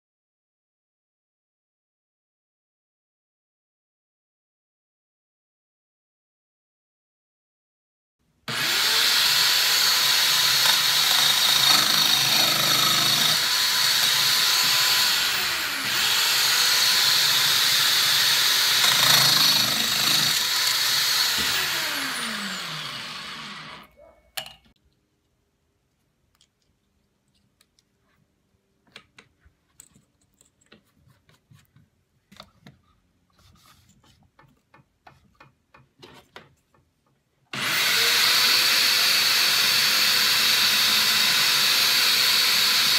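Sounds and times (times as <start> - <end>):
electric drill spinning: 8.5 - 23.9, 37.5 - 42.9
faint clicks and knocks: 33.8 - 37.4.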